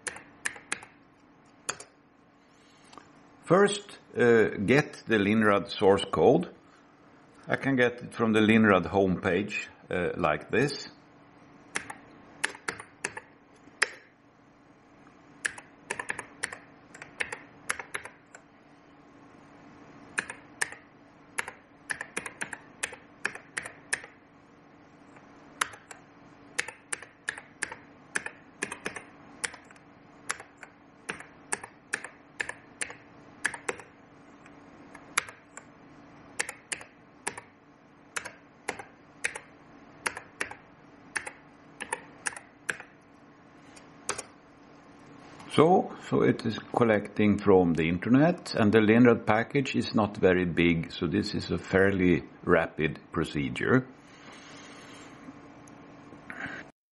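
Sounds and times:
keyboard typing clicks: 0.0s - 1.0s, 1.7s - 1.9s, 11.7s - 14.1s, 15.4s - 18.4s, 20.2s - 20.8s, 21.4s - 24.2s, 25.6s - 26.0s, 26.6s - 35.7s, 36.4s - 37.5s, 38.2s - 40.6s, 41.2s - 42.9s, 44.1s - 44.3s
faint steady hum: 0.0s - 56.7s.

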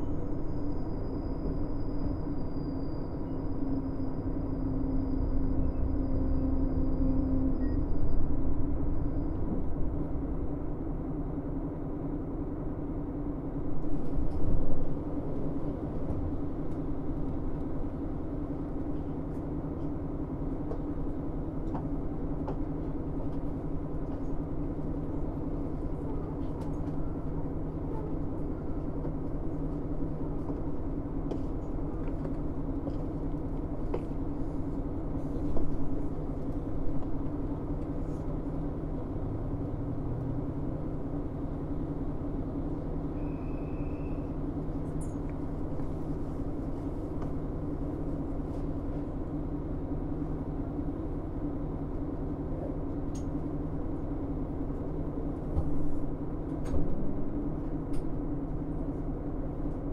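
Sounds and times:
railcar diesel engine drone: 0.0s - 59.9s
wheel and rail running noise: 13.5s - 59.9s.

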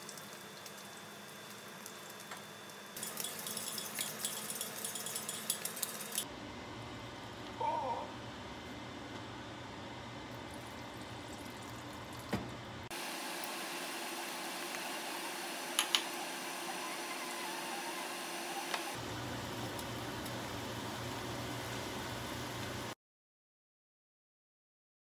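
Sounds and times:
kitchen background noise: 1.6s - 6.3s.

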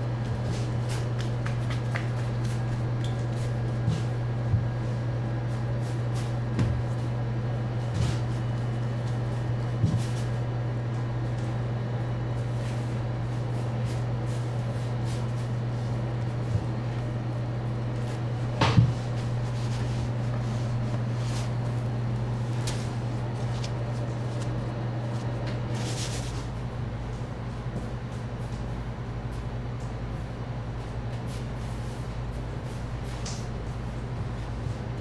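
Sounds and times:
low machine hum: 0.0s - 35.0s
dough thudding on table: 18.5s - 19.1s
soft brushing: 18.9s - 26.5s.

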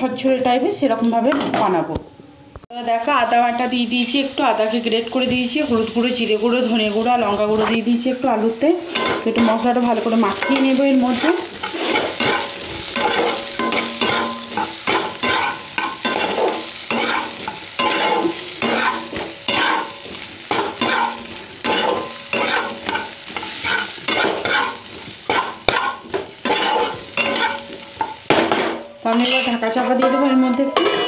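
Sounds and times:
oil sizzling: 2.7s - 29.9s
spatula scraping frying pan: 8.8s - 29.6s.

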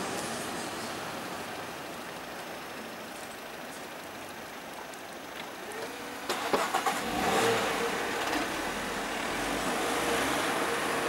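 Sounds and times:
tyres on road: 0.0s - 11.0s
car engine accelerating: 5.6s - 11.0s.

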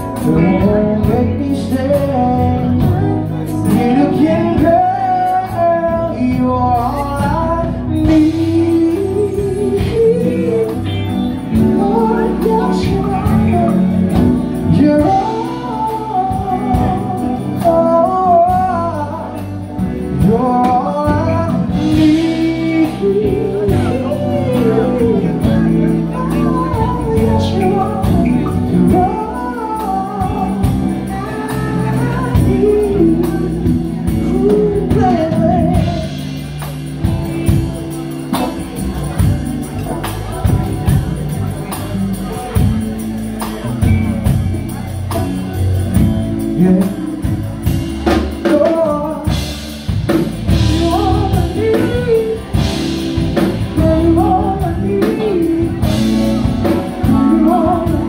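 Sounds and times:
men singing into microphones: 0.0s - 36.3s, 50.1s - 58.0s
drums: 0.0s - 58.0s
electric guitar: 0.0s - 58.0s.

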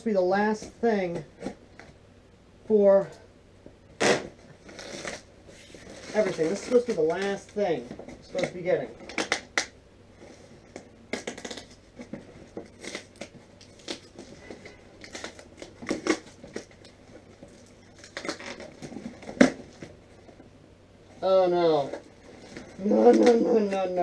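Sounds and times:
cardboard rustling and crinkling: 4.3s - 9.4s, 10.2s - 20.5s.

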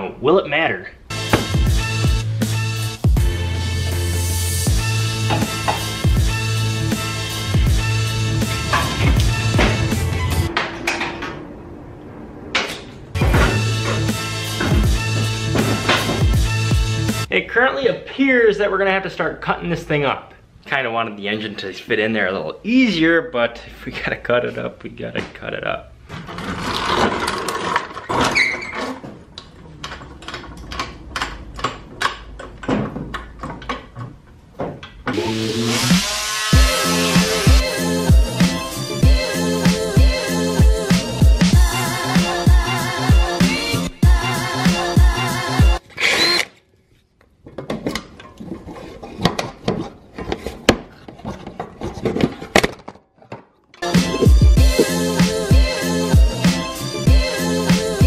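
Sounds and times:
floor jack rolling on concrete: 8.2s - 11.4s, 26.1s - 35.0s.

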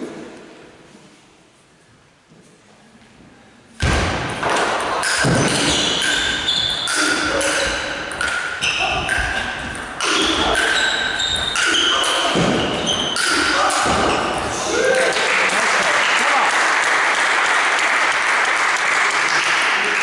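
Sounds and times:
shoes squeaking on floor: 5.0s - 14.7s.

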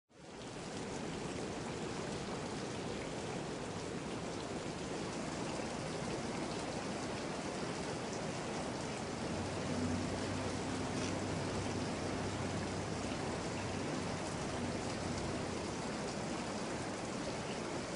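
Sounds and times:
muddy stream rushing: 0.1s - 17.9s
rain falling: 0.1s - 17.9s
faint low hum: 8.8s - 16.6s.

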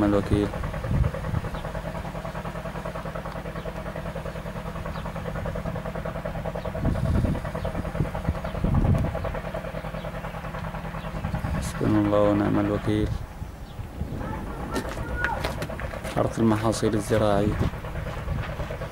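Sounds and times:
engine idling: 0.0s - 18.9s
brief low rumbles: 12.8s - 18.7s.

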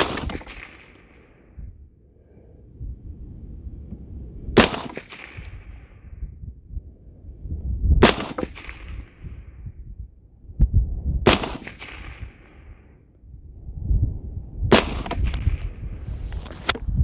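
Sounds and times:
rifle shots echoing: 0.0s - 1.4s, 4.6s - 6.0s, 8.0s - 9.2s, 11.2s - 12.7s, 14.7s - 15.6s
wind buffeting microphone: 0.0s - 17.0s.

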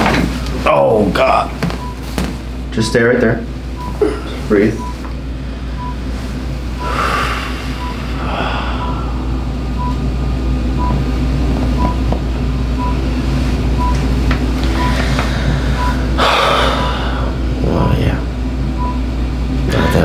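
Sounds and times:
electric machine hum: 0.0s - 20.0s
long breaths: 6.8s - 9.3s, 14.8s - 17.4s.

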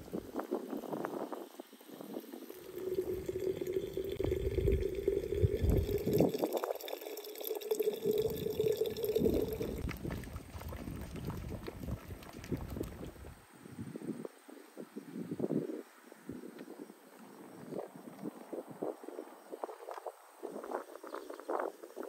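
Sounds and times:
water bubbling in a pot: 0.2s - 13.2s
water pouring into glass jar: 1.9s - 13.2s.

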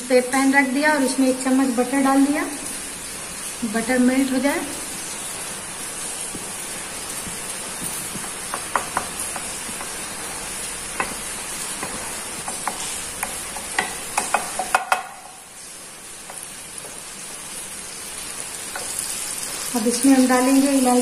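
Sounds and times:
butter sizzling in a pan: 0.0s - 21.0s
wooden spatula tapping a pan: 7.2s - 10.2s, 10.9s - 15.4s, 16.2s - 17.0s.

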